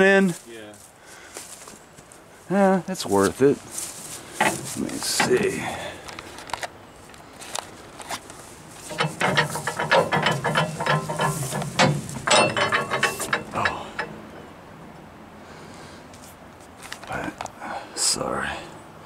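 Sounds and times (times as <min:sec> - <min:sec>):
dry grass crackling underfoot: 0:00.2 - 0:09.9.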